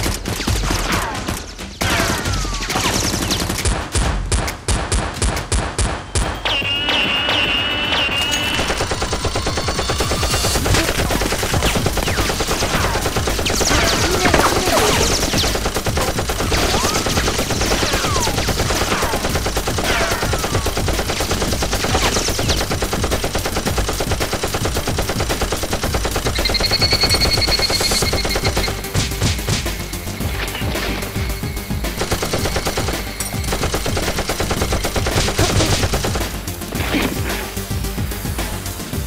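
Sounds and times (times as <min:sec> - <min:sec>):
falling whistles: 0:06.2 - 0:09.9
automatic gunfire: 0:08.4 - 0:29.6, 0:31.9 - 0:36.4.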